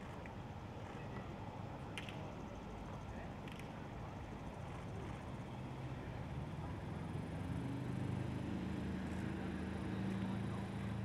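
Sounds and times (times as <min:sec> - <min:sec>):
faint outdoor background noise: 0:00.0 - 0:11.0
low engine hum: 0:04.2 - 0:11.0.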